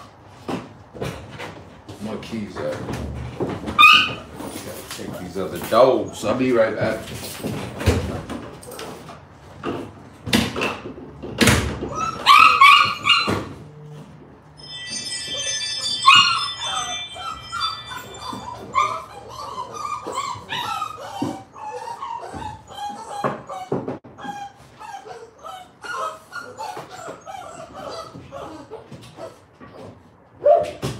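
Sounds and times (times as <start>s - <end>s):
dog whining: 3.7s - 4.5s, 11.8s - 14.0s, 14.6s - 30.8s
dogs barking and yipping: 3.7s - 4.6s, 11.7s - 13.8s, 14.6s - 30.9s.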